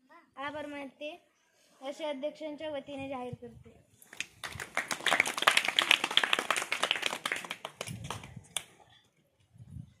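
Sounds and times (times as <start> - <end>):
children clapping: 4.1 - 8.7.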